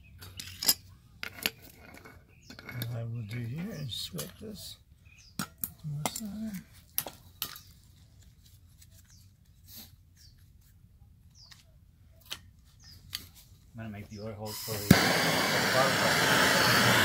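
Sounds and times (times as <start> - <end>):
metal tools clinking on bricks: 0.1 - 4.7, 5.4 - 7.7.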